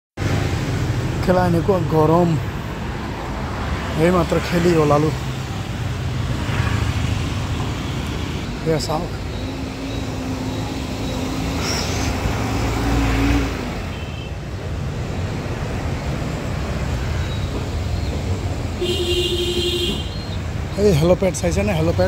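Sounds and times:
traffic road noise: 0.2s - 22.0s
motorbike passing: 2.7s - 13.9s.

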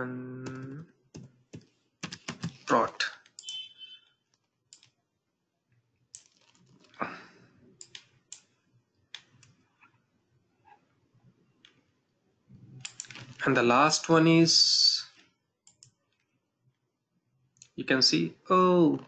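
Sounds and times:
keyboard keystrokes: 0.5s - 2.7s.

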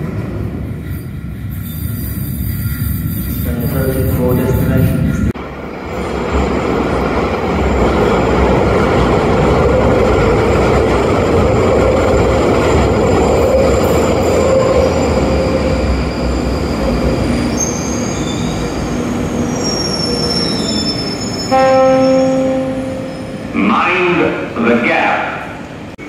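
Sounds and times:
train wheels rumbling on rail: 0.0s - 23.5s
high wheel squeals braking: 13.0s - 23.5s.

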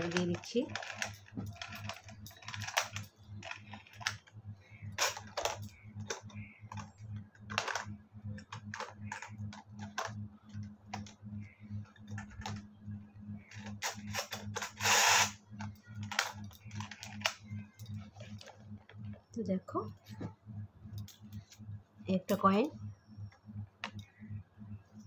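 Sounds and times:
clockwork ratchet clicks: 0.0s - 4.3s, 13.5s - 18.5s.

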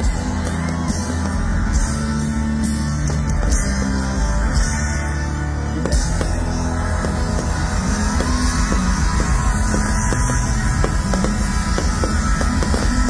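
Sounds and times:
live rock band music: 0.0s - 13.0s
steady drum beat: 5.9s - 13.0s.

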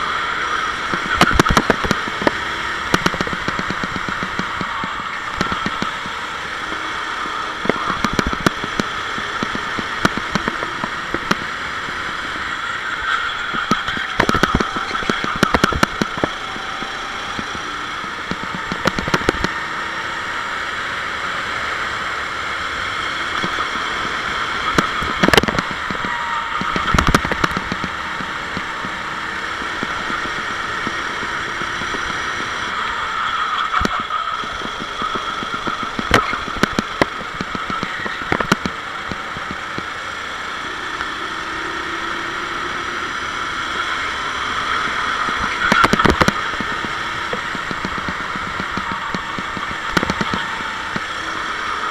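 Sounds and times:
kart engine at racing speed: 0.0s - 51.9s
kart knocking over track: 12.3s - 17.5s, 44.3s - 51.9s.

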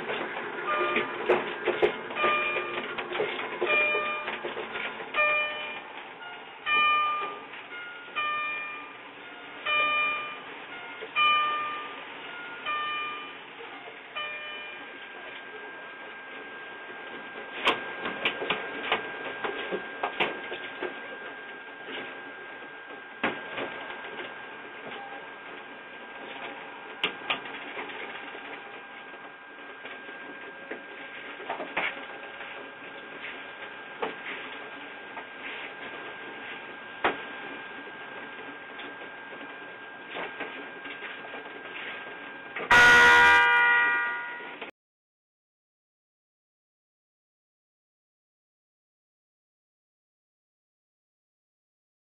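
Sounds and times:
loud ringing chime: 0.7s - 1.2s, 2.2s - 2.9s, 5.2s - 14.9s, 42.7s - 44.7s.

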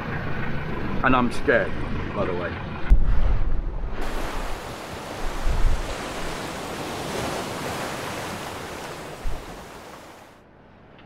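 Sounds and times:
wind buffeting microphone: 2.9s - 10.3s
rough sea rushing past hull: 3.1s - 10.4s.

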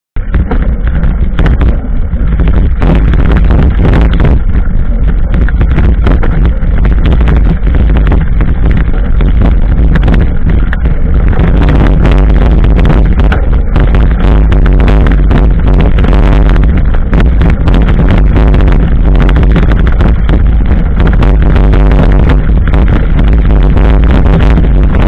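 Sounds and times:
bike knocks and rattles: 0.2s - 25.0s
handling rumble: 0.2s - 25.0s
wind buffeting microphone: 0.2s - 25.0s.

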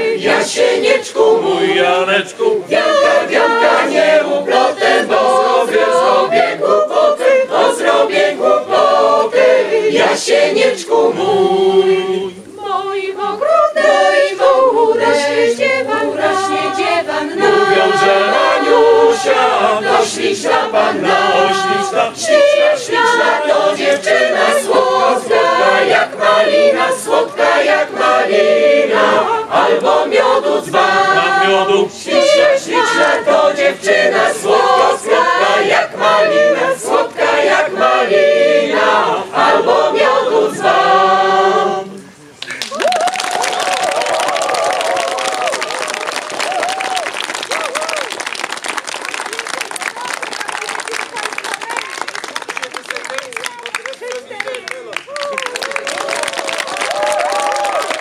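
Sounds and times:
mixed choir singing a cappella: 0.0s - 42.2s.

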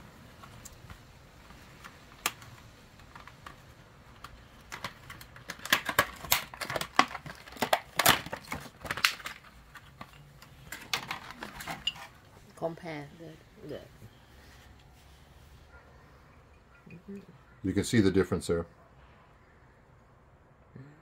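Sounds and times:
plastic packaging crinkling: 1.7s - 12.3s.

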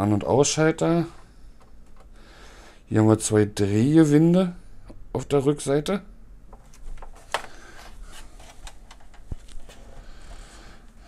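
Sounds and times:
plastic handling noise: 1.1s - 2.2s, 6.5s - 11.0s.

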